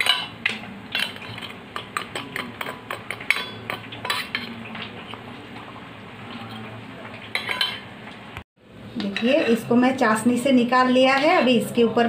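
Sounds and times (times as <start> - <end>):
spoon clinking in steel bowl: 0.0 - 4.5, 7.3 - 7.9, 9.0 - 9.7.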